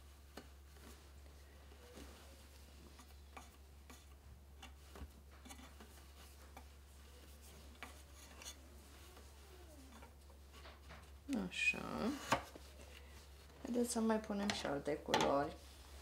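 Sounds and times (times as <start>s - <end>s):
fabric rubbing and light ticks: 0.0s - 11.5s.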